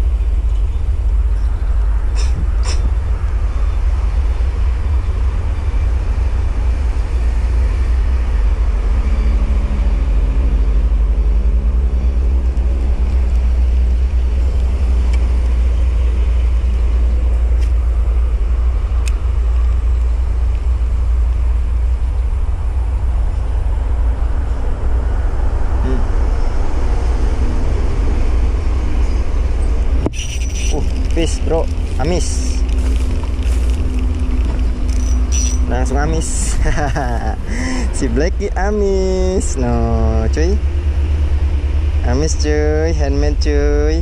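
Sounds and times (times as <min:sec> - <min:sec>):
distant engine droning: 0:00.0 - 0:44.0
wind rumble on microphone: 0:00.0 - 0:44.0.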